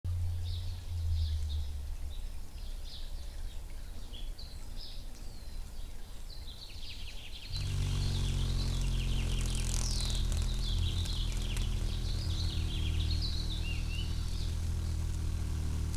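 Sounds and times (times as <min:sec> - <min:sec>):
low steady rumble: 0:00.1 - 0:04.7, 0:07.4 - 0:15.9
high bird chirps: 0:06.7 - 0:15.9
hummingbird wings buzzing: 0:07.5 - 0:15.9.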